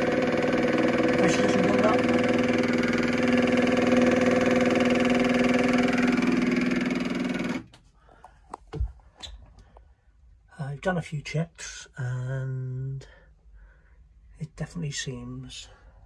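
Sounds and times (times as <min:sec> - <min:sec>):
water pump humming: 0:00.0 - 0:07.7.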